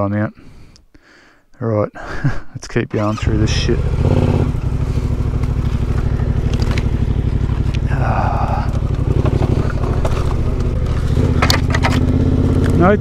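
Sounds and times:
motorcycle engine running low revs: 3.0 - 13.0.

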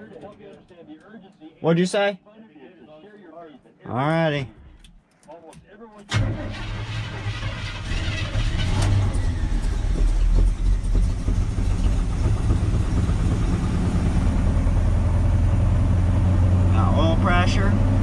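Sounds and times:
pickup truck engine running: 6.2 - 18.0.

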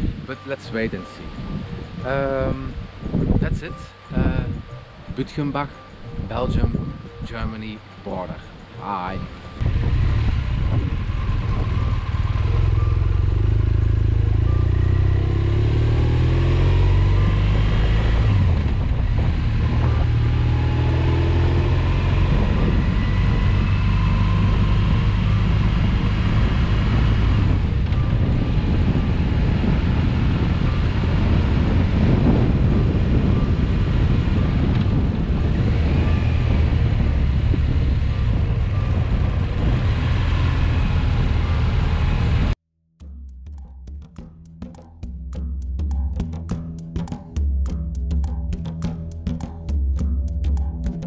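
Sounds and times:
motorcycle engine accelerating: 9.6 - 42.6.

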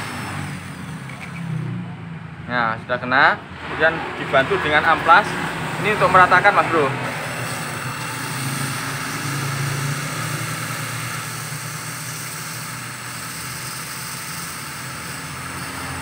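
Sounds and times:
small motor humming: 4.2 - 16.0
sandpaper sanding hiss: 7.2 - 16.0.

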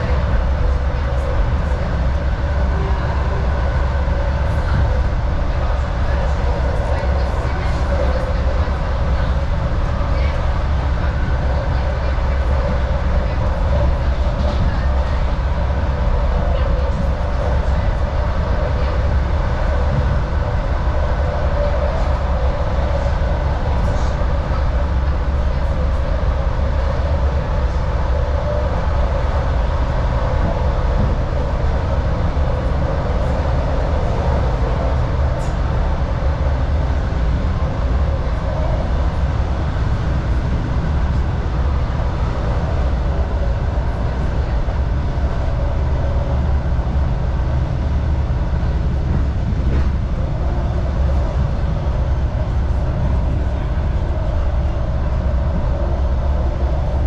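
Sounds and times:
train wheels and motors rumbling: 0.0 - 57.0.

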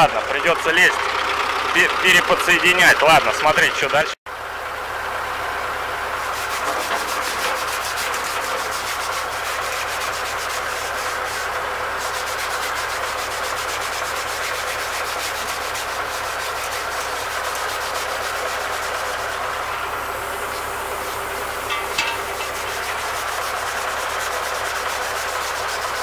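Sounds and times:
wire brush scrubbing metal: 6.2 - 26.0.

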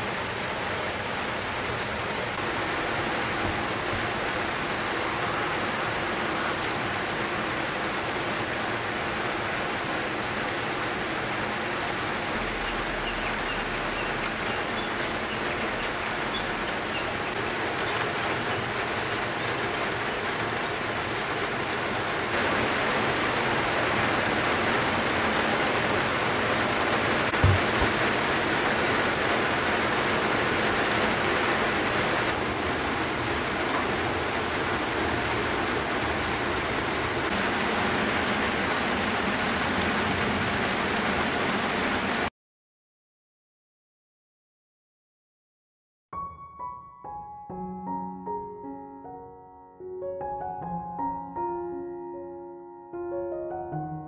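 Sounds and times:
steady rain falling: 0.0 - 42.3
low thump: 27.3 - 28.0.

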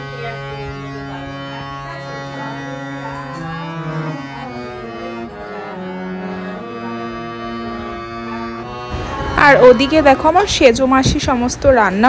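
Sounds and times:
harmonium melody over a drone: 0.0 - 12.0.

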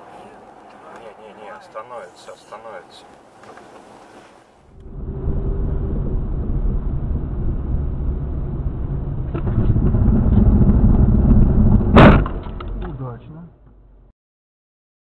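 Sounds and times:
car engine and road rumble: 0.0 - 14.1
collision bang: 4.7 - 13.1.

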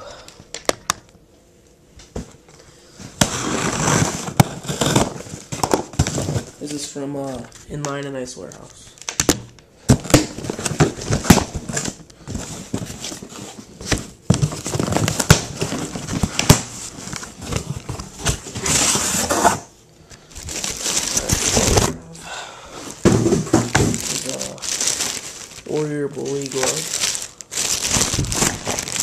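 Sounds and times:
cardboard tearing: 3.2 - 6.7, 20.5 - 22.0, 23.1 - 29.0
packing material crinkling: 10.0 - 19.6, 20.3 - 22.1, 23.0 - 29.0.

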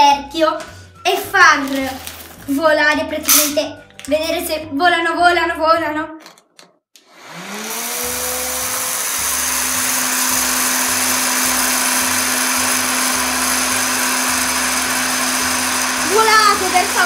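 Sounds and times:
popcorn maker fan whine: 7.1 - 17.0.

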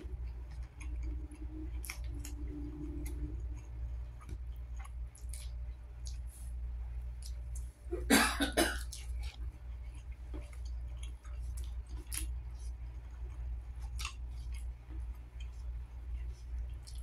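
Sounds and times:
eating mouth and hand noises: 0.0 - 7.8, 8.8 - 17.0
steady low hum: 0.0 - 17.0
man coughing: 7.9 - 8.9.

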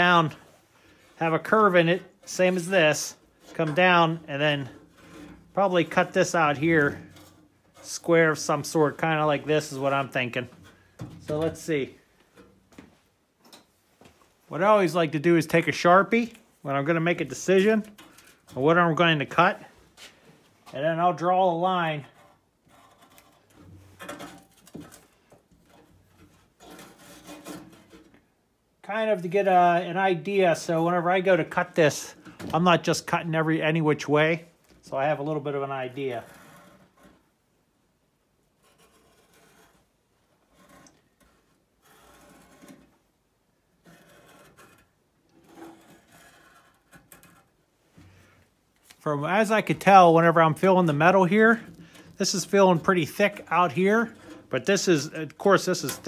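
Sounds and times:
marker scratching on metal: 38.6 - 42.8, 43.8 - 47.4.

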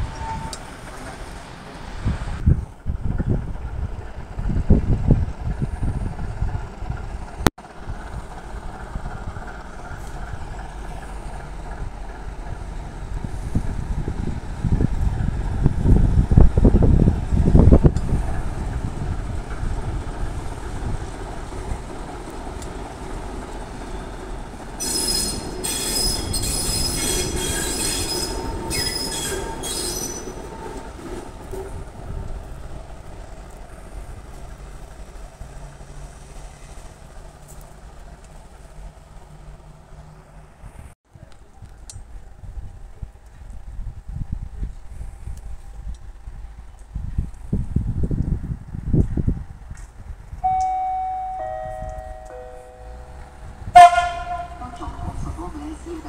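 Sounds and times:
wheels squealing on rails: 0.0 - 2.4, 5.5 - 40.4
diesel locomotive engine running: 0.0 - 40.6, 43.7 - 56.0
wind buffeting microphone: 1.3 - 35.8, 41.6 - 50.6, 53.0 - 56.0.

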